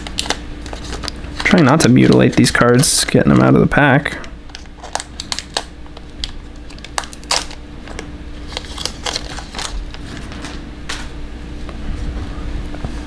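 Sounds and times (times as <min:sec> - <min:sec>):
card wrapper crinkling: 0:00.0 - 0:03.7, 0:04.4 - 0:10.6.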